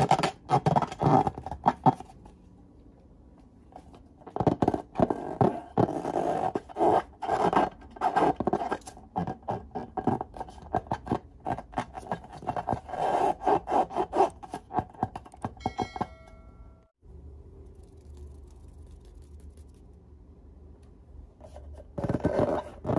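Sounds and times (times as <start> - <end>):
short chime: 15.6 - 17.0.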